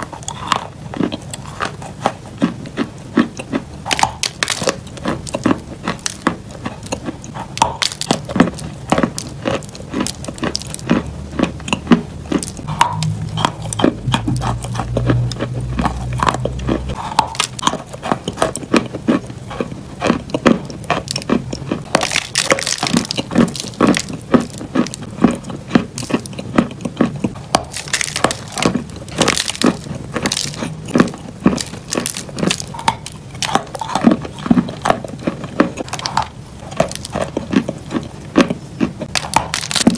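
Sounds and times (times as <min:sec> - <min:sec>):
chewing chalk crunching: 0:00.0 - 0:39.9
low hum: 0:10.6 - 0:18.3.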